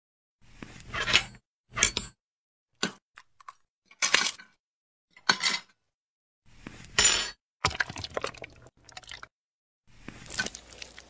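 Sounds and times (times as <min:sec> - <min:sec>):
knife crunching through glass: 0:10.3 - 0:11.0.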